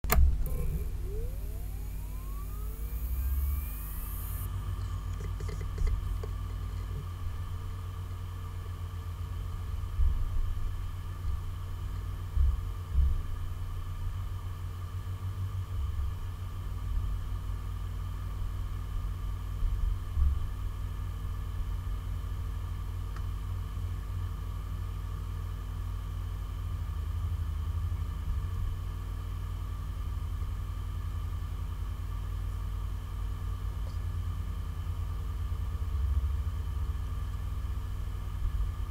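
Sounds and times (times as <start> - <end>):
hard drive humming: 0.0 - 7.2
faint constant whine: 0.1 - 9.0.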